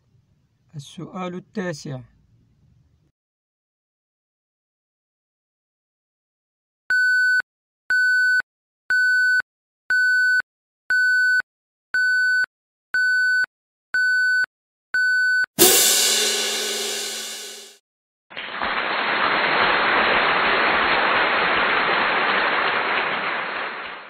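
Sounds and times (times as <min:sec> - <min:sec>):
cymbal-like crash: 0:15.6 - 0:17.8.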